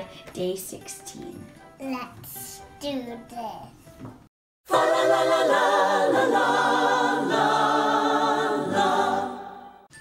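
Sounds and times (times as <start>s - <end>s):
choir singing held notes: 4.7s - 9.9s.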